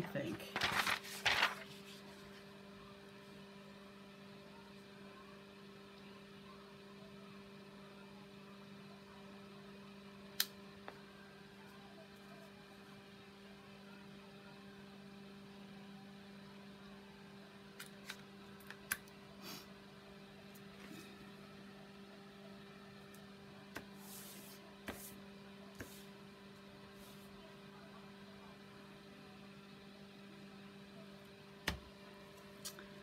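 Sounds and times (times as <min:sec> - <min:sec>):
faint hum: 0:00.0 - 0:33.0
paper rustling: 0:00.4 - 0:02.4.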